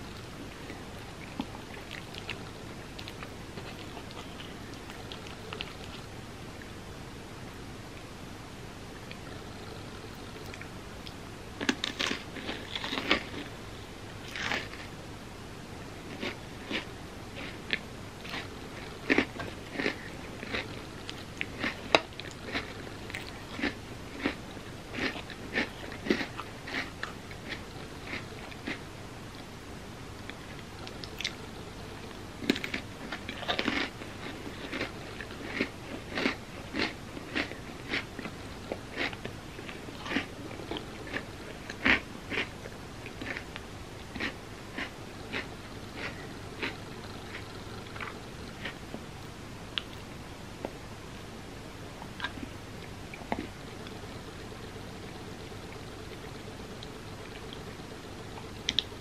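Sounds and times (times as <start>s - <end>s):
chewing and crunching cookies: 0.1s - 6.7s, 9.0s - 14.9s, 16.0s - 29.5s, 30.2s - 50.1s.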